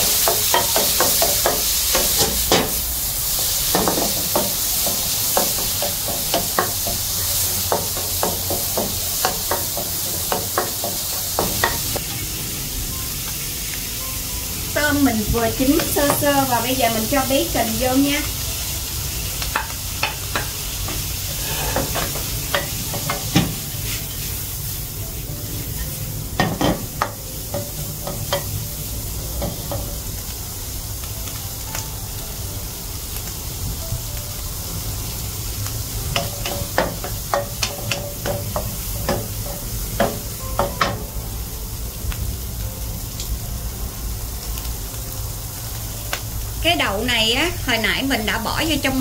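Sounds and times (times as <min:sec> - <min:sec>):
food sizzling in hot oil: 0:00.0 - 0:49.0
spatula scraping and knocking pan: 0:19.6 - 0:23.6.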